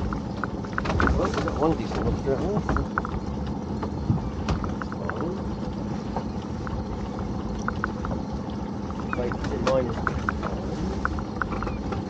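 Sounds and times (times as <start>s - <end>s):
lobster pot clicks and knocks: 0.0s - 5.4s
steady low hum: 0.0s - 12.0s
water trickling and dripping: 0.0s - 12.0s.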